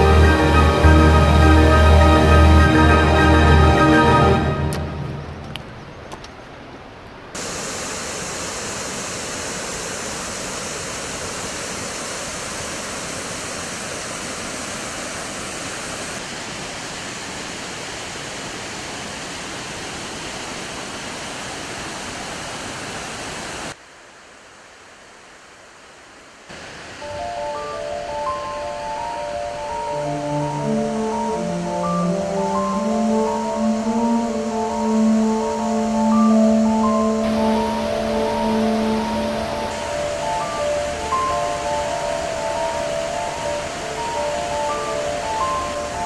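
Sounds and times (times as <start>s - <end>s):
river water rushing: 0.0s - 23.8s, 26.5s - 46.0s.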